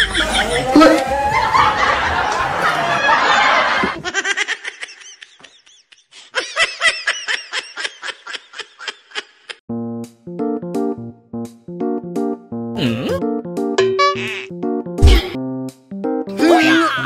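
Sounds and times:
person laughing heartily: 0:00.0 - 0:09.6.

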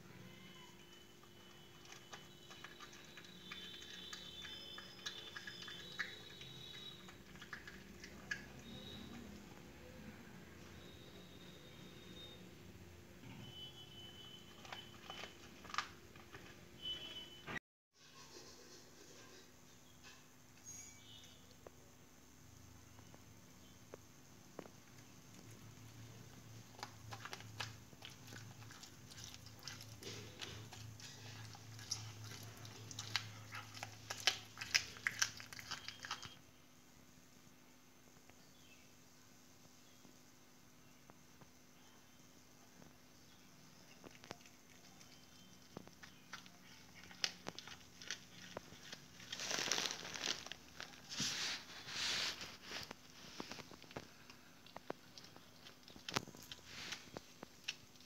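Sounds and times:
cat chewing crunches: 0:01.2 - 0:09.2, 0:25.3 - 0:36.4, 0:43.9 - 0:58.0
crinkly rustling and scuffling: 0:45.7 - 0:58.0.

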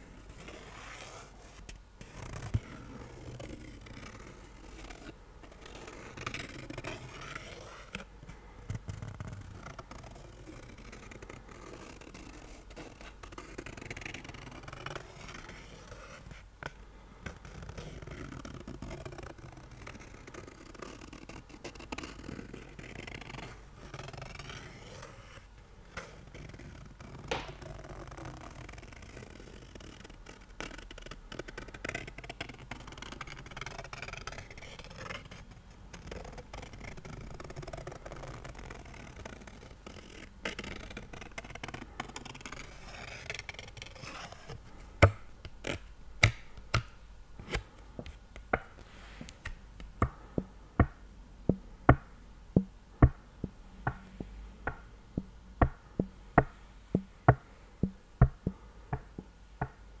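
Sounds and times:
fingernails scratching a card: 0:00.4 - 0:08.1, 0:08.8 - 0:16.4, 0:17.3 - 0:44.6
taps on a card: 0:49.4 - 0:59.8.

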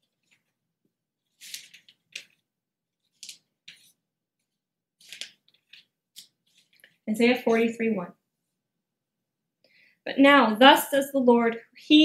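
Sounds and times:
paper pages rustling: 0:00.0 - 0:00.6, 0:01.2 - 0:07.7.

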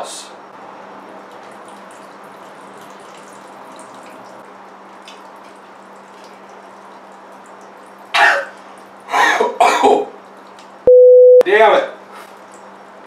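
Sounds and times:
faint drips: 0:01.2 - 0:09.1
cough-like burst: 0:08.2 - 0:08.5, 0:09.1 - 0:10.1.

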